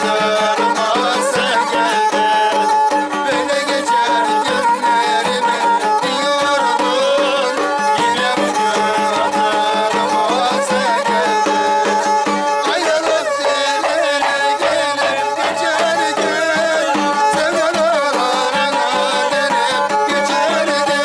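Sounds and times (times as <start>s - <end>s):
bowed fiddle melody: 0.0s - 21.0s
man singing: 0.0s - 21.0s
large drum beats: 11.1s - 21.0s.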